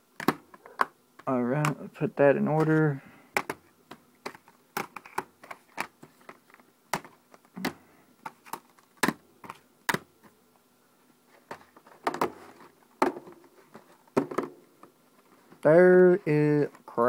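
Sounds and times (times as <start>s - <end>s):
plastic cases clicking and knocking: 0.2s - 1.8s, 2.5s - 10.3s, 11.4s - 14.9s.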